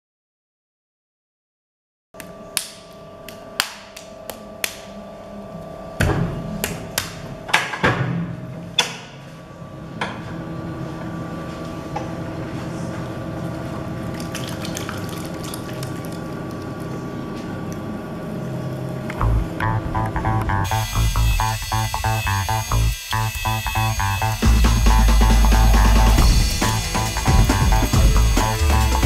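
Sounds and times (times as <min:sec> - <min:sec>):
potter's wheel humming: 0:09.4 - 0:29.0.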